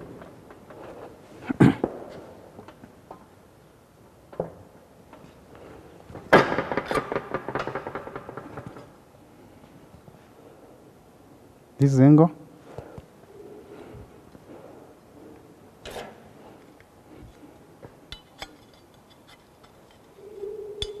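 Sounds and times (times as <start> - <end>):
metal rattling: 6.3 - 9.0, 18.1 - 21.0
sheet metal knocking and clanking: 6.4 - 9.0.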